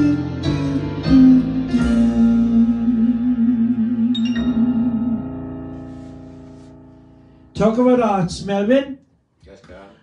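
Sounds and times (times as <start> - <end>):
man singing with vibrato: 0.0 - 5.4
backing music: 0.0 - 8.2.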